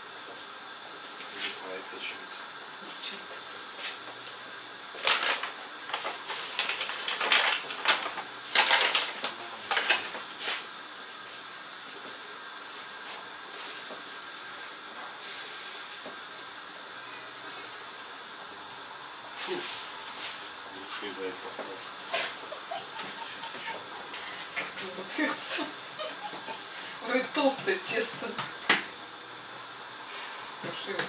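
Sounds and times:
steady background hiss: 0:00.0 - 0:31.0
scrapes and crinkles: 0:05.0 - 0:10.6.

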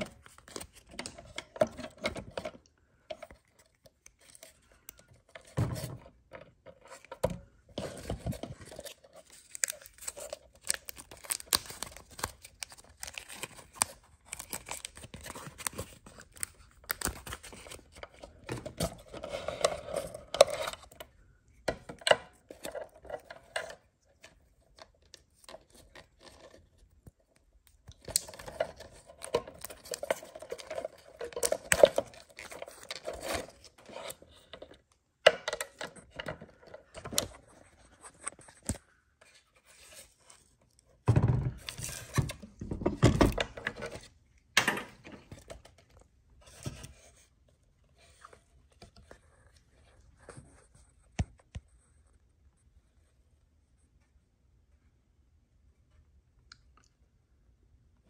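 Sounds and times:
objects being handled: 0:00.0 - 0:51.7.

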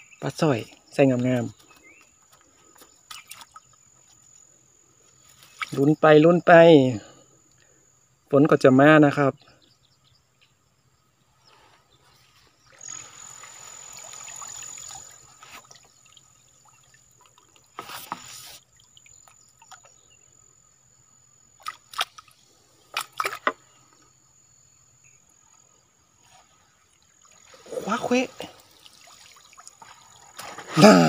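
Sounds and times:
water trickling and dripping: 0:12.7 - 0:20.1, 0:26.8 - 0:30.6
water splash: 0:12.8 - 0:19.9, 0:21.6 - 0:23.5, 0:27.2 - 0:30.9
short sharp splashes or knocks: 0:21.6 - 0:23.6, 0:27.2 - 0:30.8.

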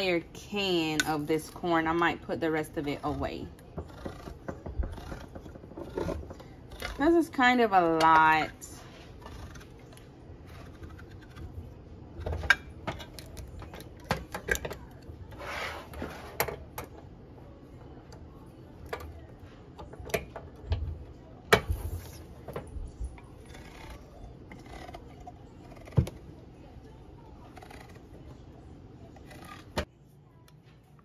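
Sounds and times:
can opener scraping: 0:02.7 - 0:16.7, 0:23.2 - 0:26.2.

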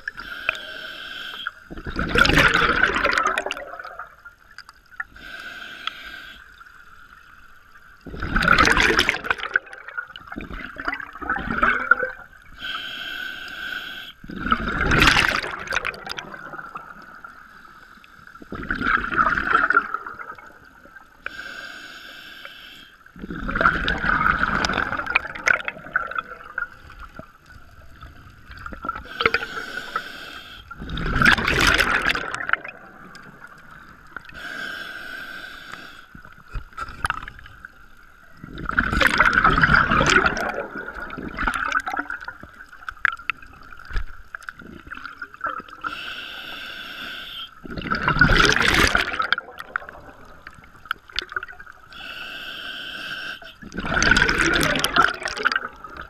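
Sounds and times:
diver breathing through regulator: 0:00.1 - 0:01.6, 0:12.6 - 0:14.4, 0:29.0 - 0:31.8, 0:33.8 - 0:36.2, 0:45.8 - 0:47.6, 0:51.9 - 0:53.7
exhaled bubbles rushing: 0:01.7 - 0:04.4, 0:08.0 - 0:12.3, 0:14.2 - 0:17.3, 0:18.5 - 0:21.0, 0:23.2 - 0:29.4, 0:30.7 - 0:34.3, 0:38.4 - 0:45.8, 0:47.6 - 0:51.8, 0:53.6 - 0:56.0.

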